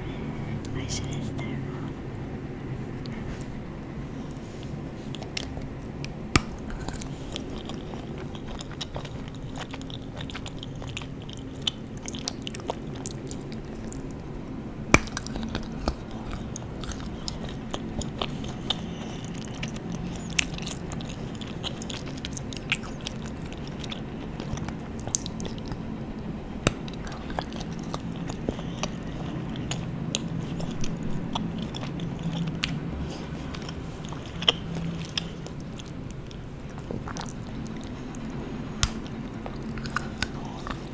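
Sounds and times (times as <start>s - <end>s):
chewing candy bar: 5.0s - 40.9s
sharp snapping bites: 5.2s - 7.1s, 14.9s - 17.4s, 26.6s - 28.8s, 38.8s - 40.8s.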